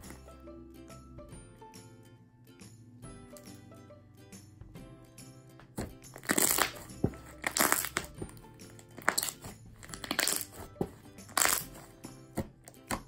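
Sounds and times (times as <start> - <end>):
soft background music: 0.0 - 13.0
slime squishing: 5.8 - 13.0.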